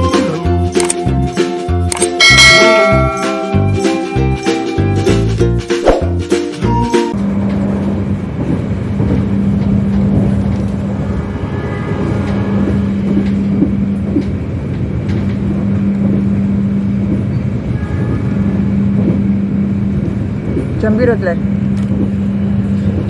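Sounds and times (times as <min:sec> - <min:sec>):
train wheels rumbling on track: 0:02.2 - 0:23.0
constant low hum: 0:07.1 - 0:23.0.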